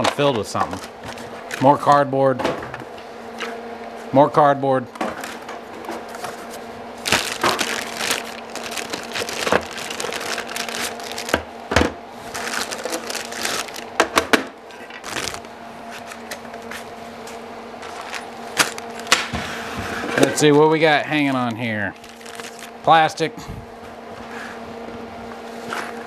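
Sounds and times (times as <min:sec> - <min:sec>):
steady low hum: 0:00.0 - 0:26.0
plastic bags crinkling: 0:07.0 - 0:11.5, 0:12.2 - 0:14.0, 0:15.0 - 0:15.5, 0:21.9 - 0:22.8.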